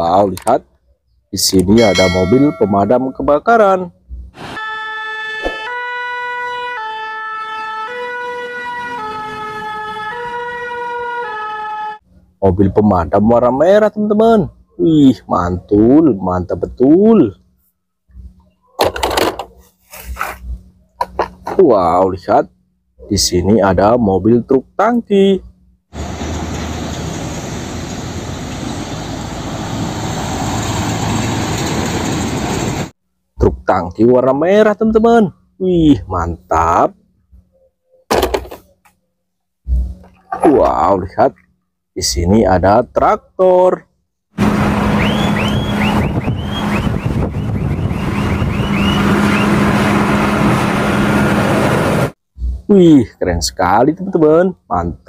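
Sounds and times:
fire engine two-tone siren: 4.4 - 12.1, 44.4 - 52.1
diesel trucks driving past: 26.0 - 32.9, 44.4 - 52.2.

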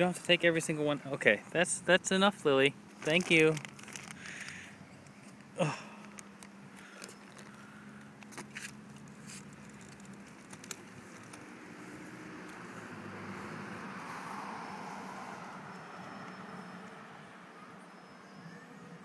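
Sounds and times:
street traffic hum: 0.0 - 19.0
faint clicks and crackles: 2.9 - 11.6
car passing: 5.5 - 19.0.

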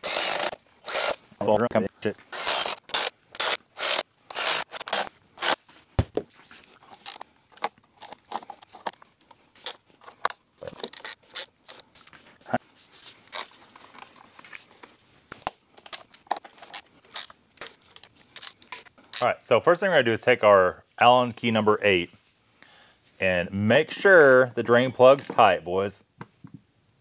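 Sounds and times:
ratchet strokes: 0.0 - 1.2, 2.3 - 5.6.

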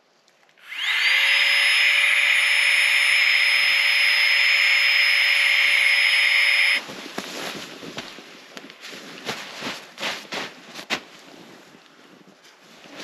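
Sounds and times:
mini air pump whining: 0.6 - 6.8.

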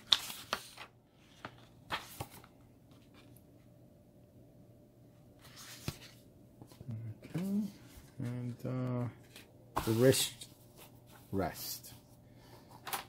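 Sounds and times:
booklet pages rustling: 0.0 - 3.5, 5.4 - 8.5.

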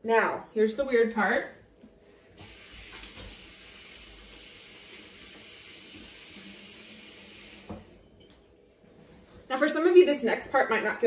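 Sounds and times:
tap water streaming into sink: 2.4 - 8.0.

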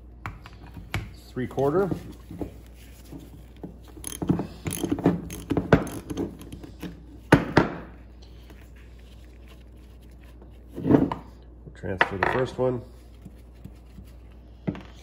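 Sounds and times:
socket ratchet clicking: 4.0 - 6.9.

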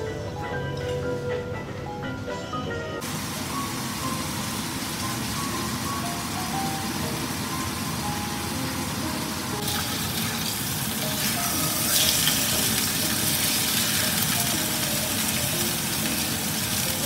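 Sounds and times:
steaks sizzling in a frying pan: 3.0 - 17.0
spatula turning steaks: 9.6 - 17.0.

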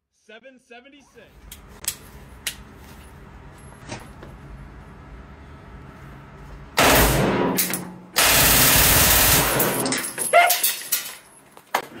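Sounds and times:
pistol firing full-auto bursts: 8.2 - 9.9.

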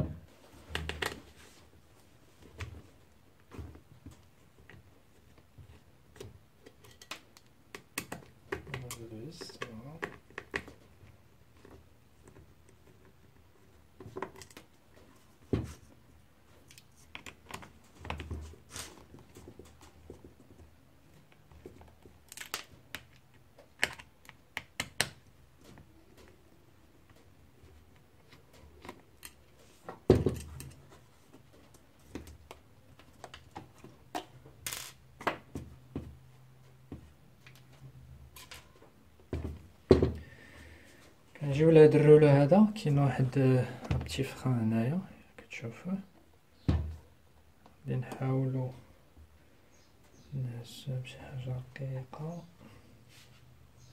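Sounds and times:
plastic and metal parts clicking: 22.0 - 25.2.

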